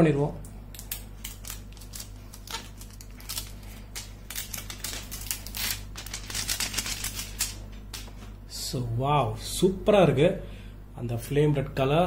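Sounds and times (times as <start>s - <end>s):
plastic film peeling off glass: 0.8s - 7.6s.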